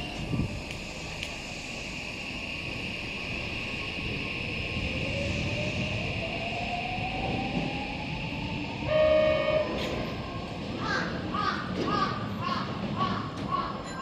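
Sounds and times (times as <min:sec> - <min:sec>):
train horn blast: 0:08.9 - 0:10.1.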